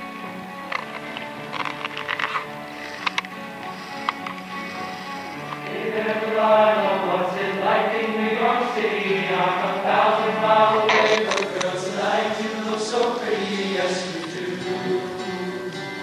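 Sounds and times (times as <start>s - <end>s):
acoustic guitars: 0.0s - 16.0s
men's choir singing: 3.2s - 16.0s.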